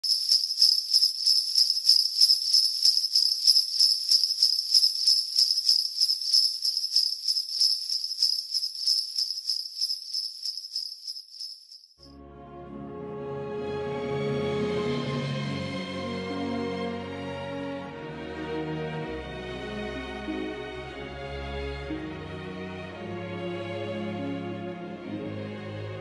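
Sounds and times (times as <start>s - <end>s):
sleigh bells shaken: 0.0s - 12.1s
soft instrumental music: 12.2s - 26.0s.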